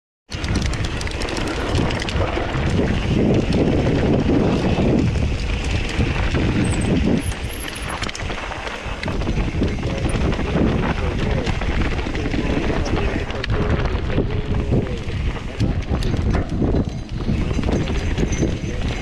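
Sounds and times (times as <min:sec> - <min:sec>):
bike clicking and rattling: 0:00.3 - 0:19.0
tyres on dirt and stones: 0:00.3 - 0:19.0
wind buffeting microphone: 0:00.3 - 0:19.0.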